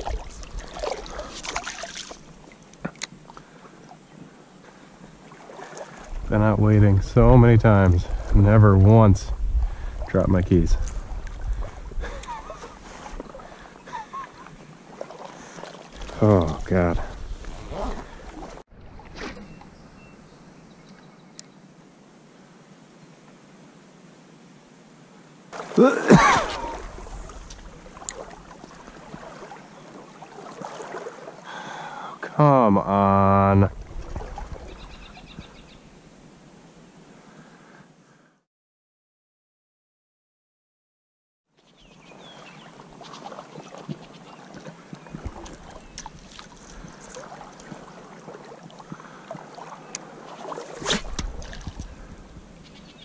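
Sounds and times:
small splashes and clicks: 0:00.0 - 0:03.5, 0:05.4 - 0:06.1, 0:27.4 - 0:29.6, 0:42.9 - 0:51.9
water swishing around legs: 0:00.0 - 0:06.3, 0:10.8 - 0:20.0, 0:25.5 - 0:31.5, 0:33.7 - 0:35.5, 0:42.0 - 0:52.9
faint click: 0:21.4 - 0:21.6
person grunting: 0:25.8 - 0:26.9.

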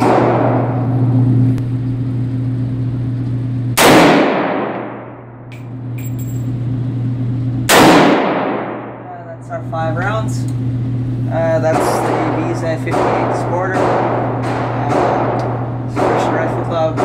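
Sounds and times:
rifle shots echoing indoors: 0:00.0 - 0:00.8, 0:03.8 - 0:05.4, 0:07.6 - 0:09.0, 0:11.7 - 0:17.0
steady low hum: 0:00.0 - 0:17.0.

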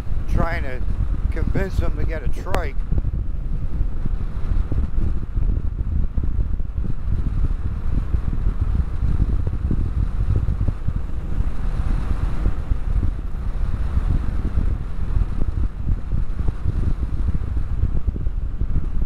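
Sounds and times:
motorcycle engine running: 0:00.0 - 0:19.0
wind buffeting microphone: 0:00.0 - 0:19.0.

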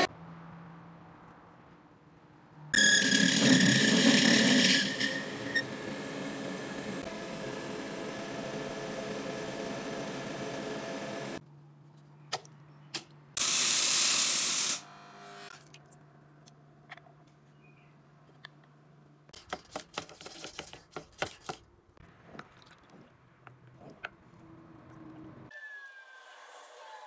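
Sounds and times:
machine running: 0:02.8 - 0:11.4.

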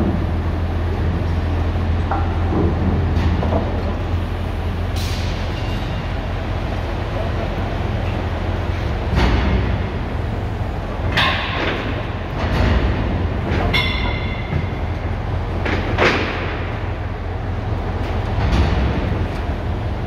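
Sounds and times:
crane engine rumbling: 0:00.0 - 0:20.0
steel beams clanking and scraping: 0:11.0 - 0:16.9.

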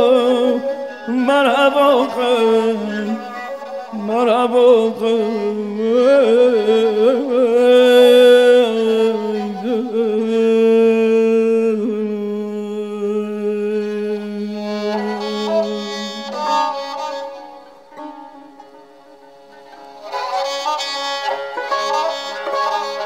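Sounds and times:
long wavering melodic note: 0:14.4 - 0:23.0.

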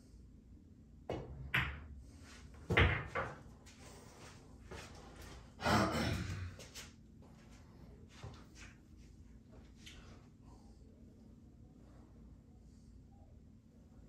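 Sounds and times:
pool balls clacking: 0:01.1 - 0:01.9, 0:02.6 - 0:03.4.

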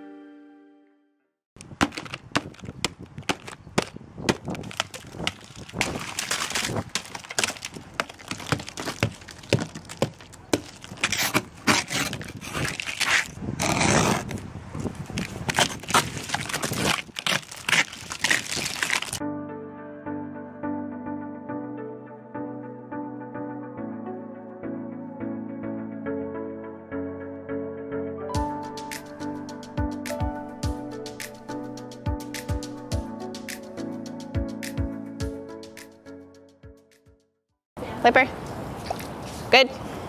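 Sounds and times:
ice scraper scraping car windows: 0:04.5 - 0:14.4, 0:15.2 - 0:19.1.

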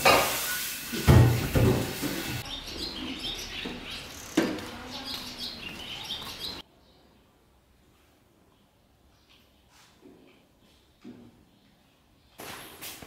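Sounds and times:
pots and dishes clattering: 0:00.0 - 0:02.4
small birds chirping: 0:02.4 - 0:07.3.

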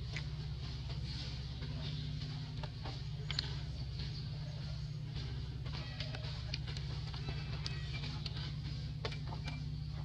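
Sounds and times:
background music with low bass: 0:00.0 - 0:10.0.

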